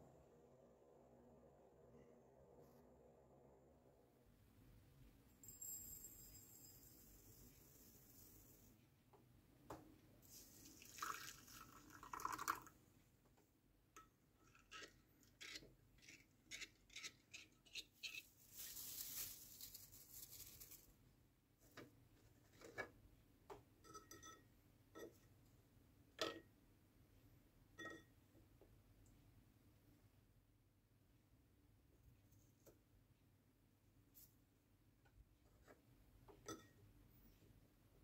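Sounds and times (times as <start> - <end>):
liquid pouring into a bowl: 10.4 - 12.8.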